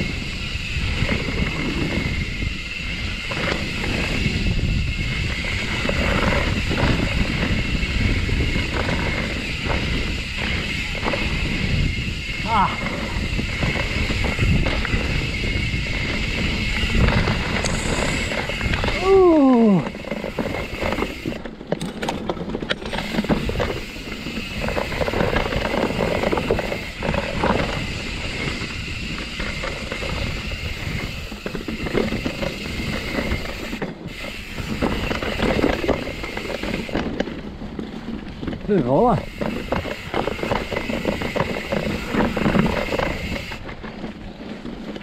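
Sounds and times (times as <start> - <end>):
mountain bike rattling over rocks: 0.0 - 45.0.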